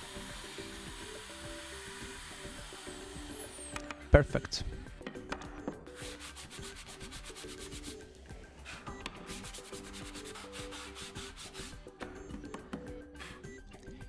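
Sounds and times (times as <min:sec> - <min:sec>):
sanding block scratching plywood: 0:05.9 - 0:08.0, 0:08.6 - 0:11.9.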